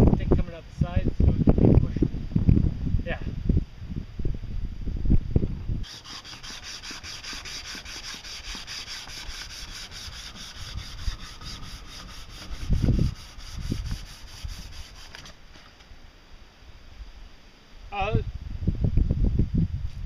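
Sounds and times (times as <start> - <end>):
sandpaper scratching: 5.8 - 15.4.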